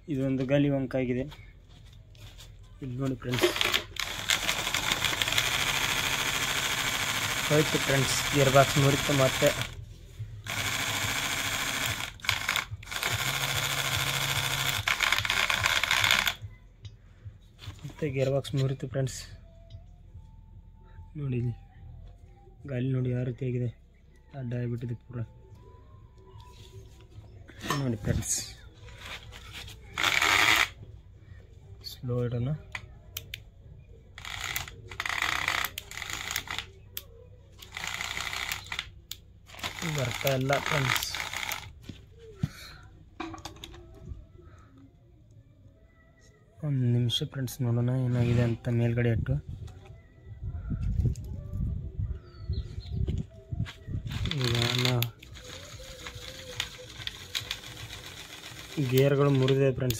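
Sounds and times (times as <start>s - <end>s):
gears clicking and rattling: 3.2s - 9.8s, 10.4s - 16.4s, 29.9s - 30.8s, 34.2s - 41.8s, 54.0s - 59.9s
small electric motor running: 3.3s - 16.4s, 29.9s - 30.8s, 34.2s - 36.7s, 37.6s - 38.9s, 39.5s - 41.8s, 54.1s - 59.6s.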